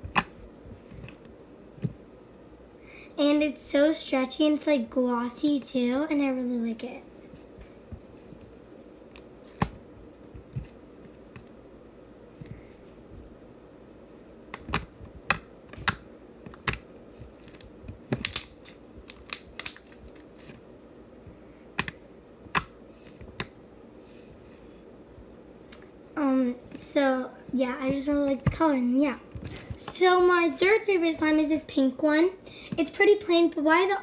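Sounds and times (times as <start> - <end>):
slime clicking and popping: 18.2 - 19.9.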